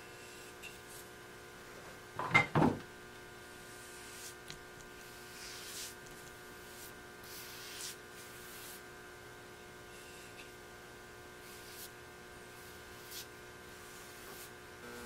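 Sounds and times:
faint steady hum: 0:00.0 - 0:15.0
paintbrush strokes hissing: 0:03.6 - 0:04.4, 0:05.0 - 0:08.8, 0:11.4 - 0:14.5.

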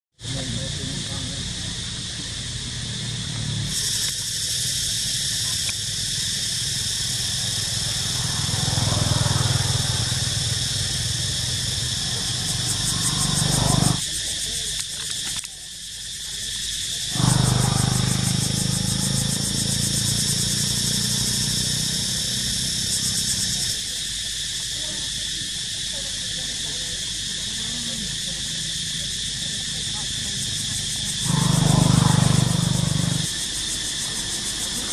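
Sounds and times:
high-pitched insects droning: 0:00.2 - 0:34.9.

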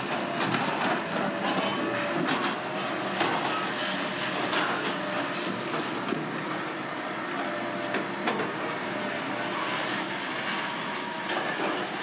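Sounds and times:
excavators running: 0:00.0 - 0:12.0.

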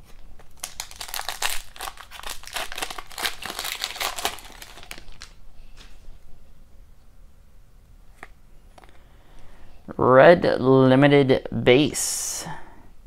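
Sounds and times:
foil wrapper tearing and crinkling: 0:00.4 - 0:05.4.

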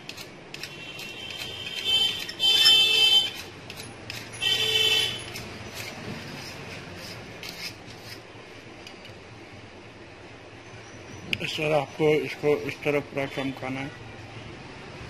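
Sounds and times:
knife scraping metal rod: 0:00.0 - 0:09.2.

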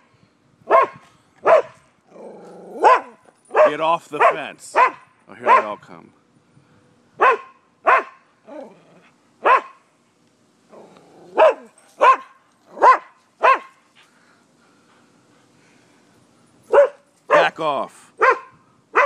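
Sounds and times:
dogs barking aggressively: 0:00.7 - 0:05.8, 0:07.2 - 0:08.3, 0:09.4 - 0:09.8, 0:10.7 - 0:14.0, 0:16.6 - 0:17.6, 0:18.2 - 0:19.0.

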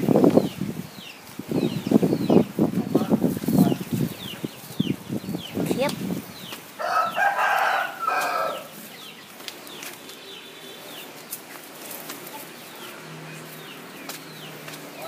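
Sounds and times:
rooster crowing: 0:06.8 - 0:08.8.

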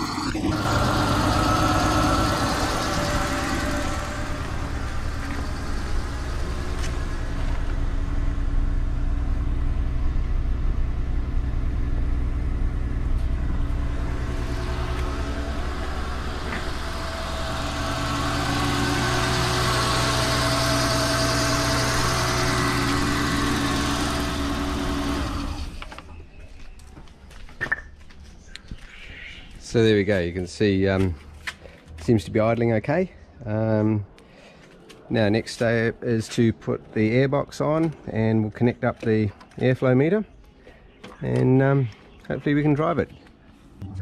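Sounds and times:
car engine idling: 0:00.0 - 0:26.2.

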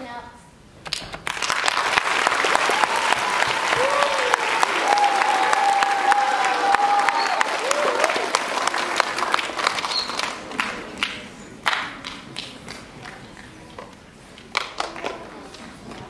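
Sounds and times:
audience applause: 0:01.2 - 0:12.8.

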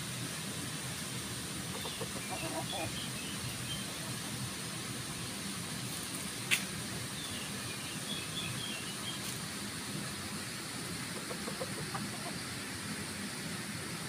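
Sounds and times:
background hiss: 0:00.0 - 0:14.0
rooster clucking softly: 0:01.7 - 0:03.0, 0:11.0 - 0:12.6.

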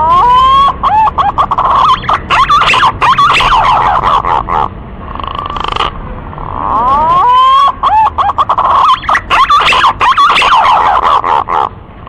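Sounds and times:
pigeon whistled song: 0:00.1 - 0:04.4, 0:06.6 - 0:11.7.

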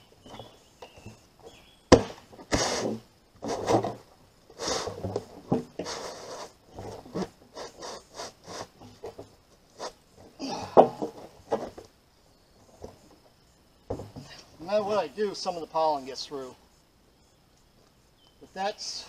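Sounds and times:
plastic scraping on plastic: 0:02.4 - 0:10.0.

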